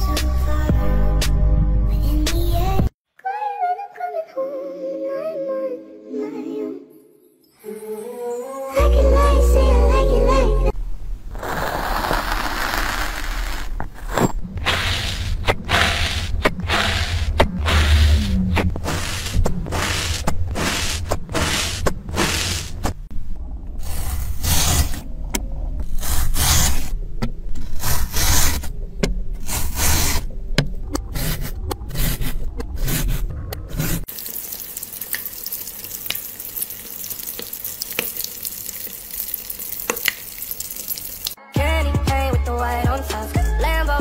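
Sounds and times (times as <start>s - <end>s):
metal tool scraping sand: 11.3s - 23.0s, 23.8s - 25.1s, 25.9s - 27.0s, 27.6s - 28.8s, 29.4s - 30.3s
low rumble: 13.9s - 26.2s.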